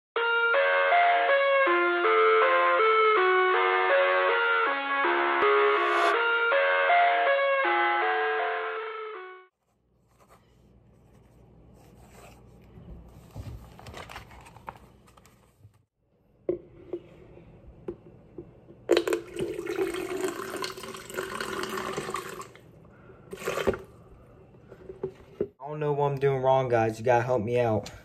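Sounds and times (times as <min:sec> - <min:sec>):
notebook rustling: 0:09.6 - 0:15.8
water pouring into plastic pitcher: 0:18.9 - 0:22.6, 0:23.3 - 0:23.9.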